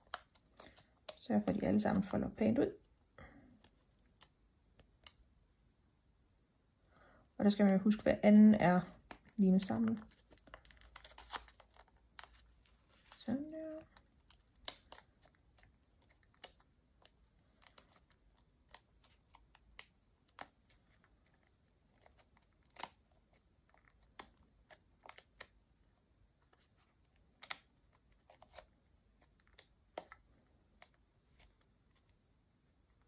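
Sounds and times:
paper clicking and rustling: 0:09.0 - 0:25.6.

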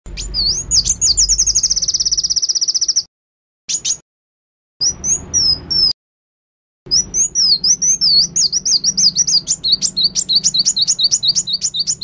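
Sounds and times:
songbird singing: 0:00.1 - 0:03.1, 0:03.7 - 0:04.0, 0:04.8 - 0:06.0, 0:06.9 - 0:12.0.

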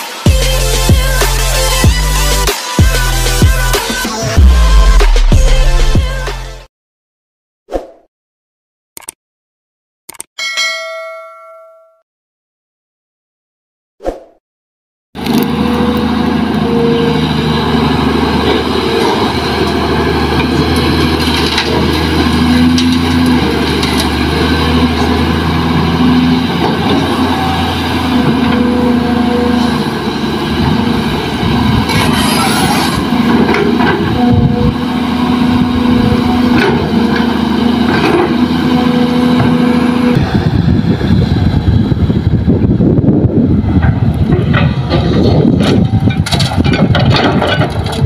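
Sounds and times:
excavator diesel engine running: 0:15.2 - 0:48.0.

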